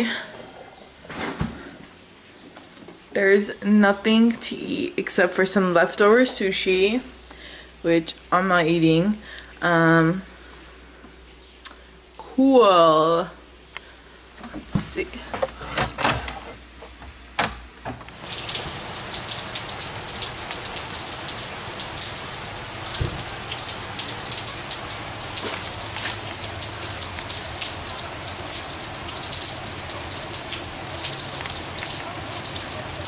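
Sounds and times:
heavy rain on pavement: 0:18.1 - 0:33.0.

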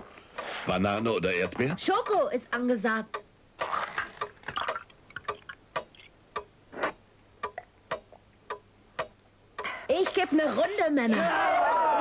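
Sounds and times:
liquid pouring and drinking: 0:03.6 - 0:06.1.

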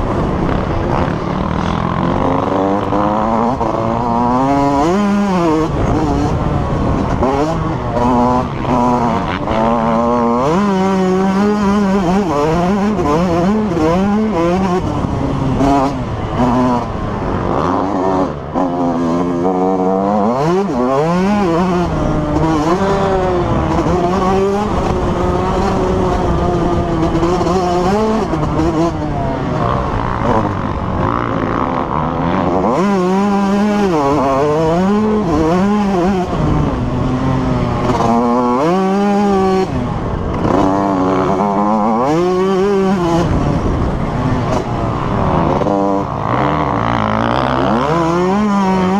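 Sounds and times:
dirt bike engine revving: 0:00.0 - 0:48.9.

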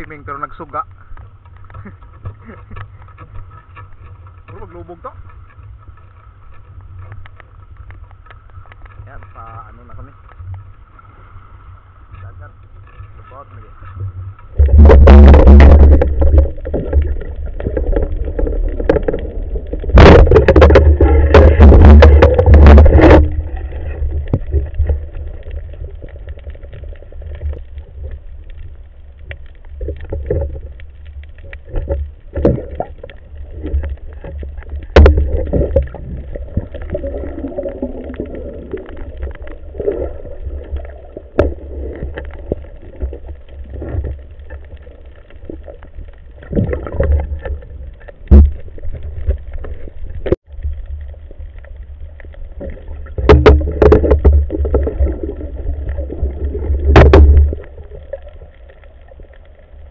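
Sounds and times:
gurgling water: 0:00.0 - 0:59.9
underwater water rumble: 0:00.0 - 0:59.9
sharp clicks and knocks: 0:14.4 - 0:26.7, 0:52.6 - 0:55.1.

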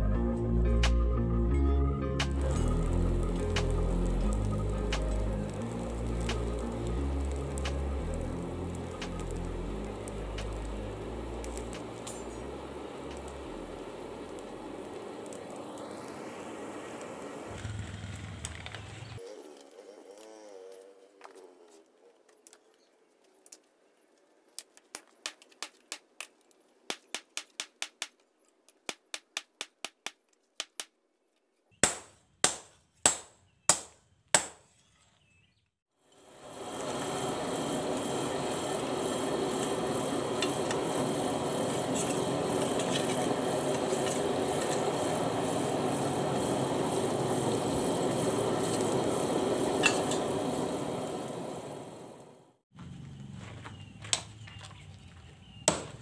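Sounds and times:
power tool running: 0:02.3 - 0:19.2, 0:36.1 - 0:52.4.

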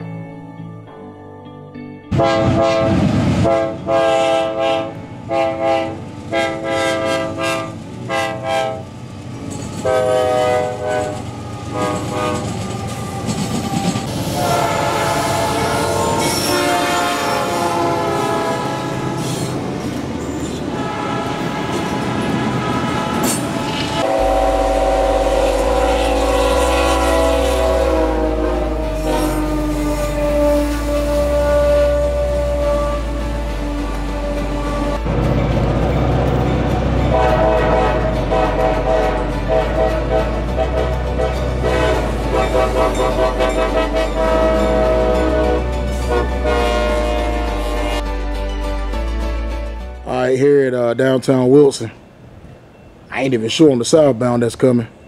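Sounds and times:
locomotive horn blasts: 0:02.1 - 0:08.9, 0:09.8 - 0:13.3, 0:14.1 - 0:19.6, 0:20.7 - 0:35.1, 0:37.0 - 0:48.1
deep rumble of passing locomotives: 0:02.1 - 0:53.2.

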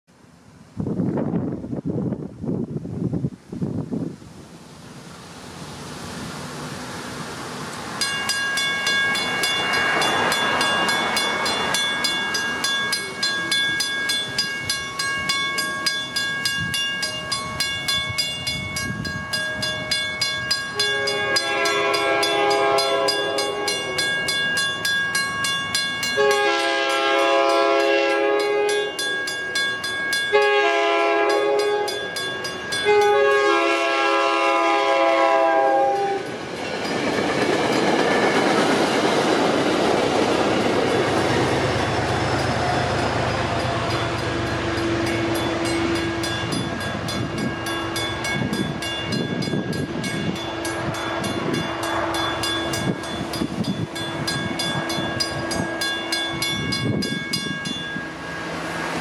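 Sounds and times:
train rolling: 0:00.3 - 0:59.0
crossing bell ringing: 0:07.9 - 0:59.0
train horn blasts: 0:20.7 - 0:24.2, 0:26.1 - 0:29.0, 0:30.3 - 0:32.1, 0:32.8 - 0:36.3.

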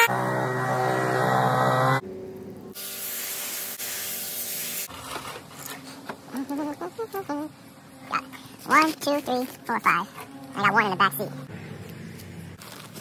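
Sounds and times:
leaf blower whine: 0:00.0 - 0:02.0
pressure washer jet hissing on rock: 0:02.8 - 0:04.9.

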